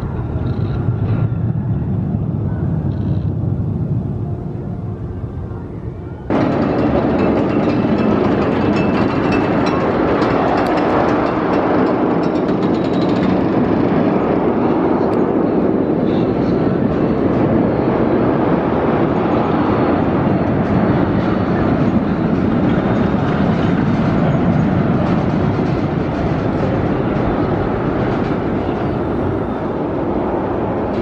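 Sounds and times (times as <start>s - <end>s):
roller coaster wheels rumbling on rails: 0.0s - 31.0s
rapid clatter of clicks: 6.3s - 14.0s.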